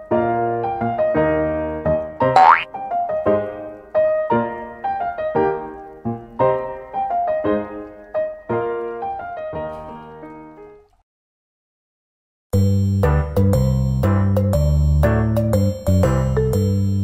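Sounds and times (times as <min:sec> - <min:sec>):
tone gliding upward: 0:02.4 - 0:02.7.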